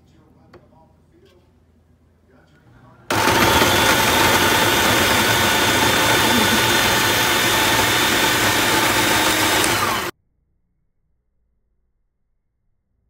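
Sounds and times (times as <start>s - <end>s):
food processor chopping vegetables: 3.1s - 10.1s.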